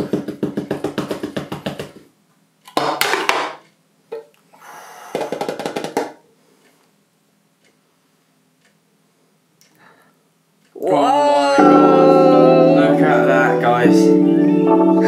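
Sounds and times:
rapid drum roll taps: 0.0 - 2.0, 5.1 - 6.2.

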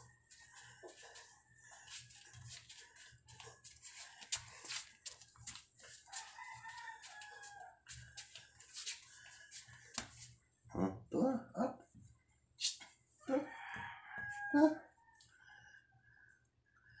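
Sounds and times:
rooster crowing: 6.1 - 7.9, 13.2 - 15.8.

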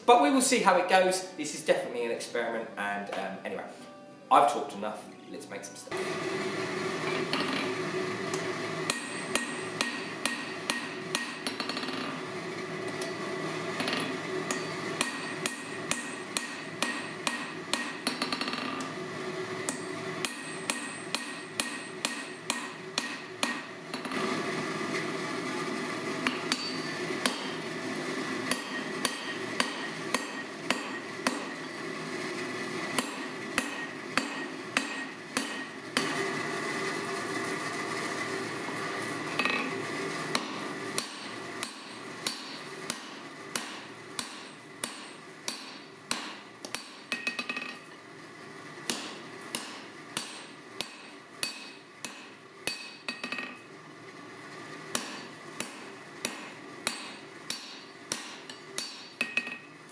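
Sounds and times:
hammer ringing on anvil: 7.0 - 7.7, 8.9 - 12.2, 13.8 - 18.8, 19.7 - 24.2, 26.2 - 27.6, 28.5 - 31.8, 33.0 - 36.2, 39.4 - 39.7, 40.3 - 48.0, 48.9 - 53.7, 54.9 - 59.8.

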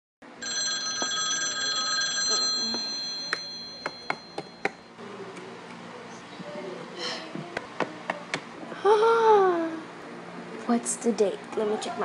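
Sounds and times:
high ringing tone: 0.4 - 5.0.

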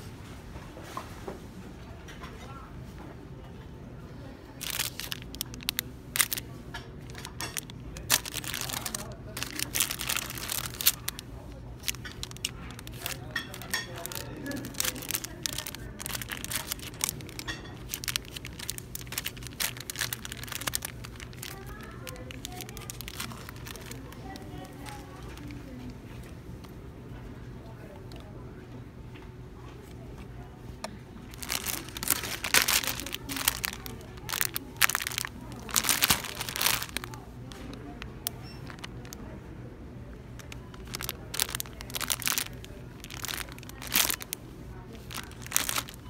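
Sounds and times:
plastic bags crinkling: 4.4 - 26.0, 31.2 - 39.3, 40.3 - 46.0.

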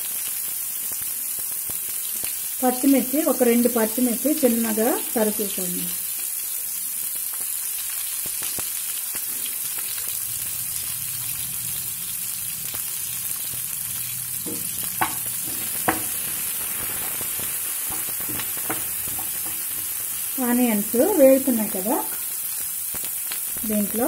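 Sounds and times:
onions sizzling in oil: 0.0 - 24.0
small crackles: 7.1 - 10.2, 22.1 - 24.0
spatula knocking on pan: 14.4 - 16.4, 17.9 - 20.0.

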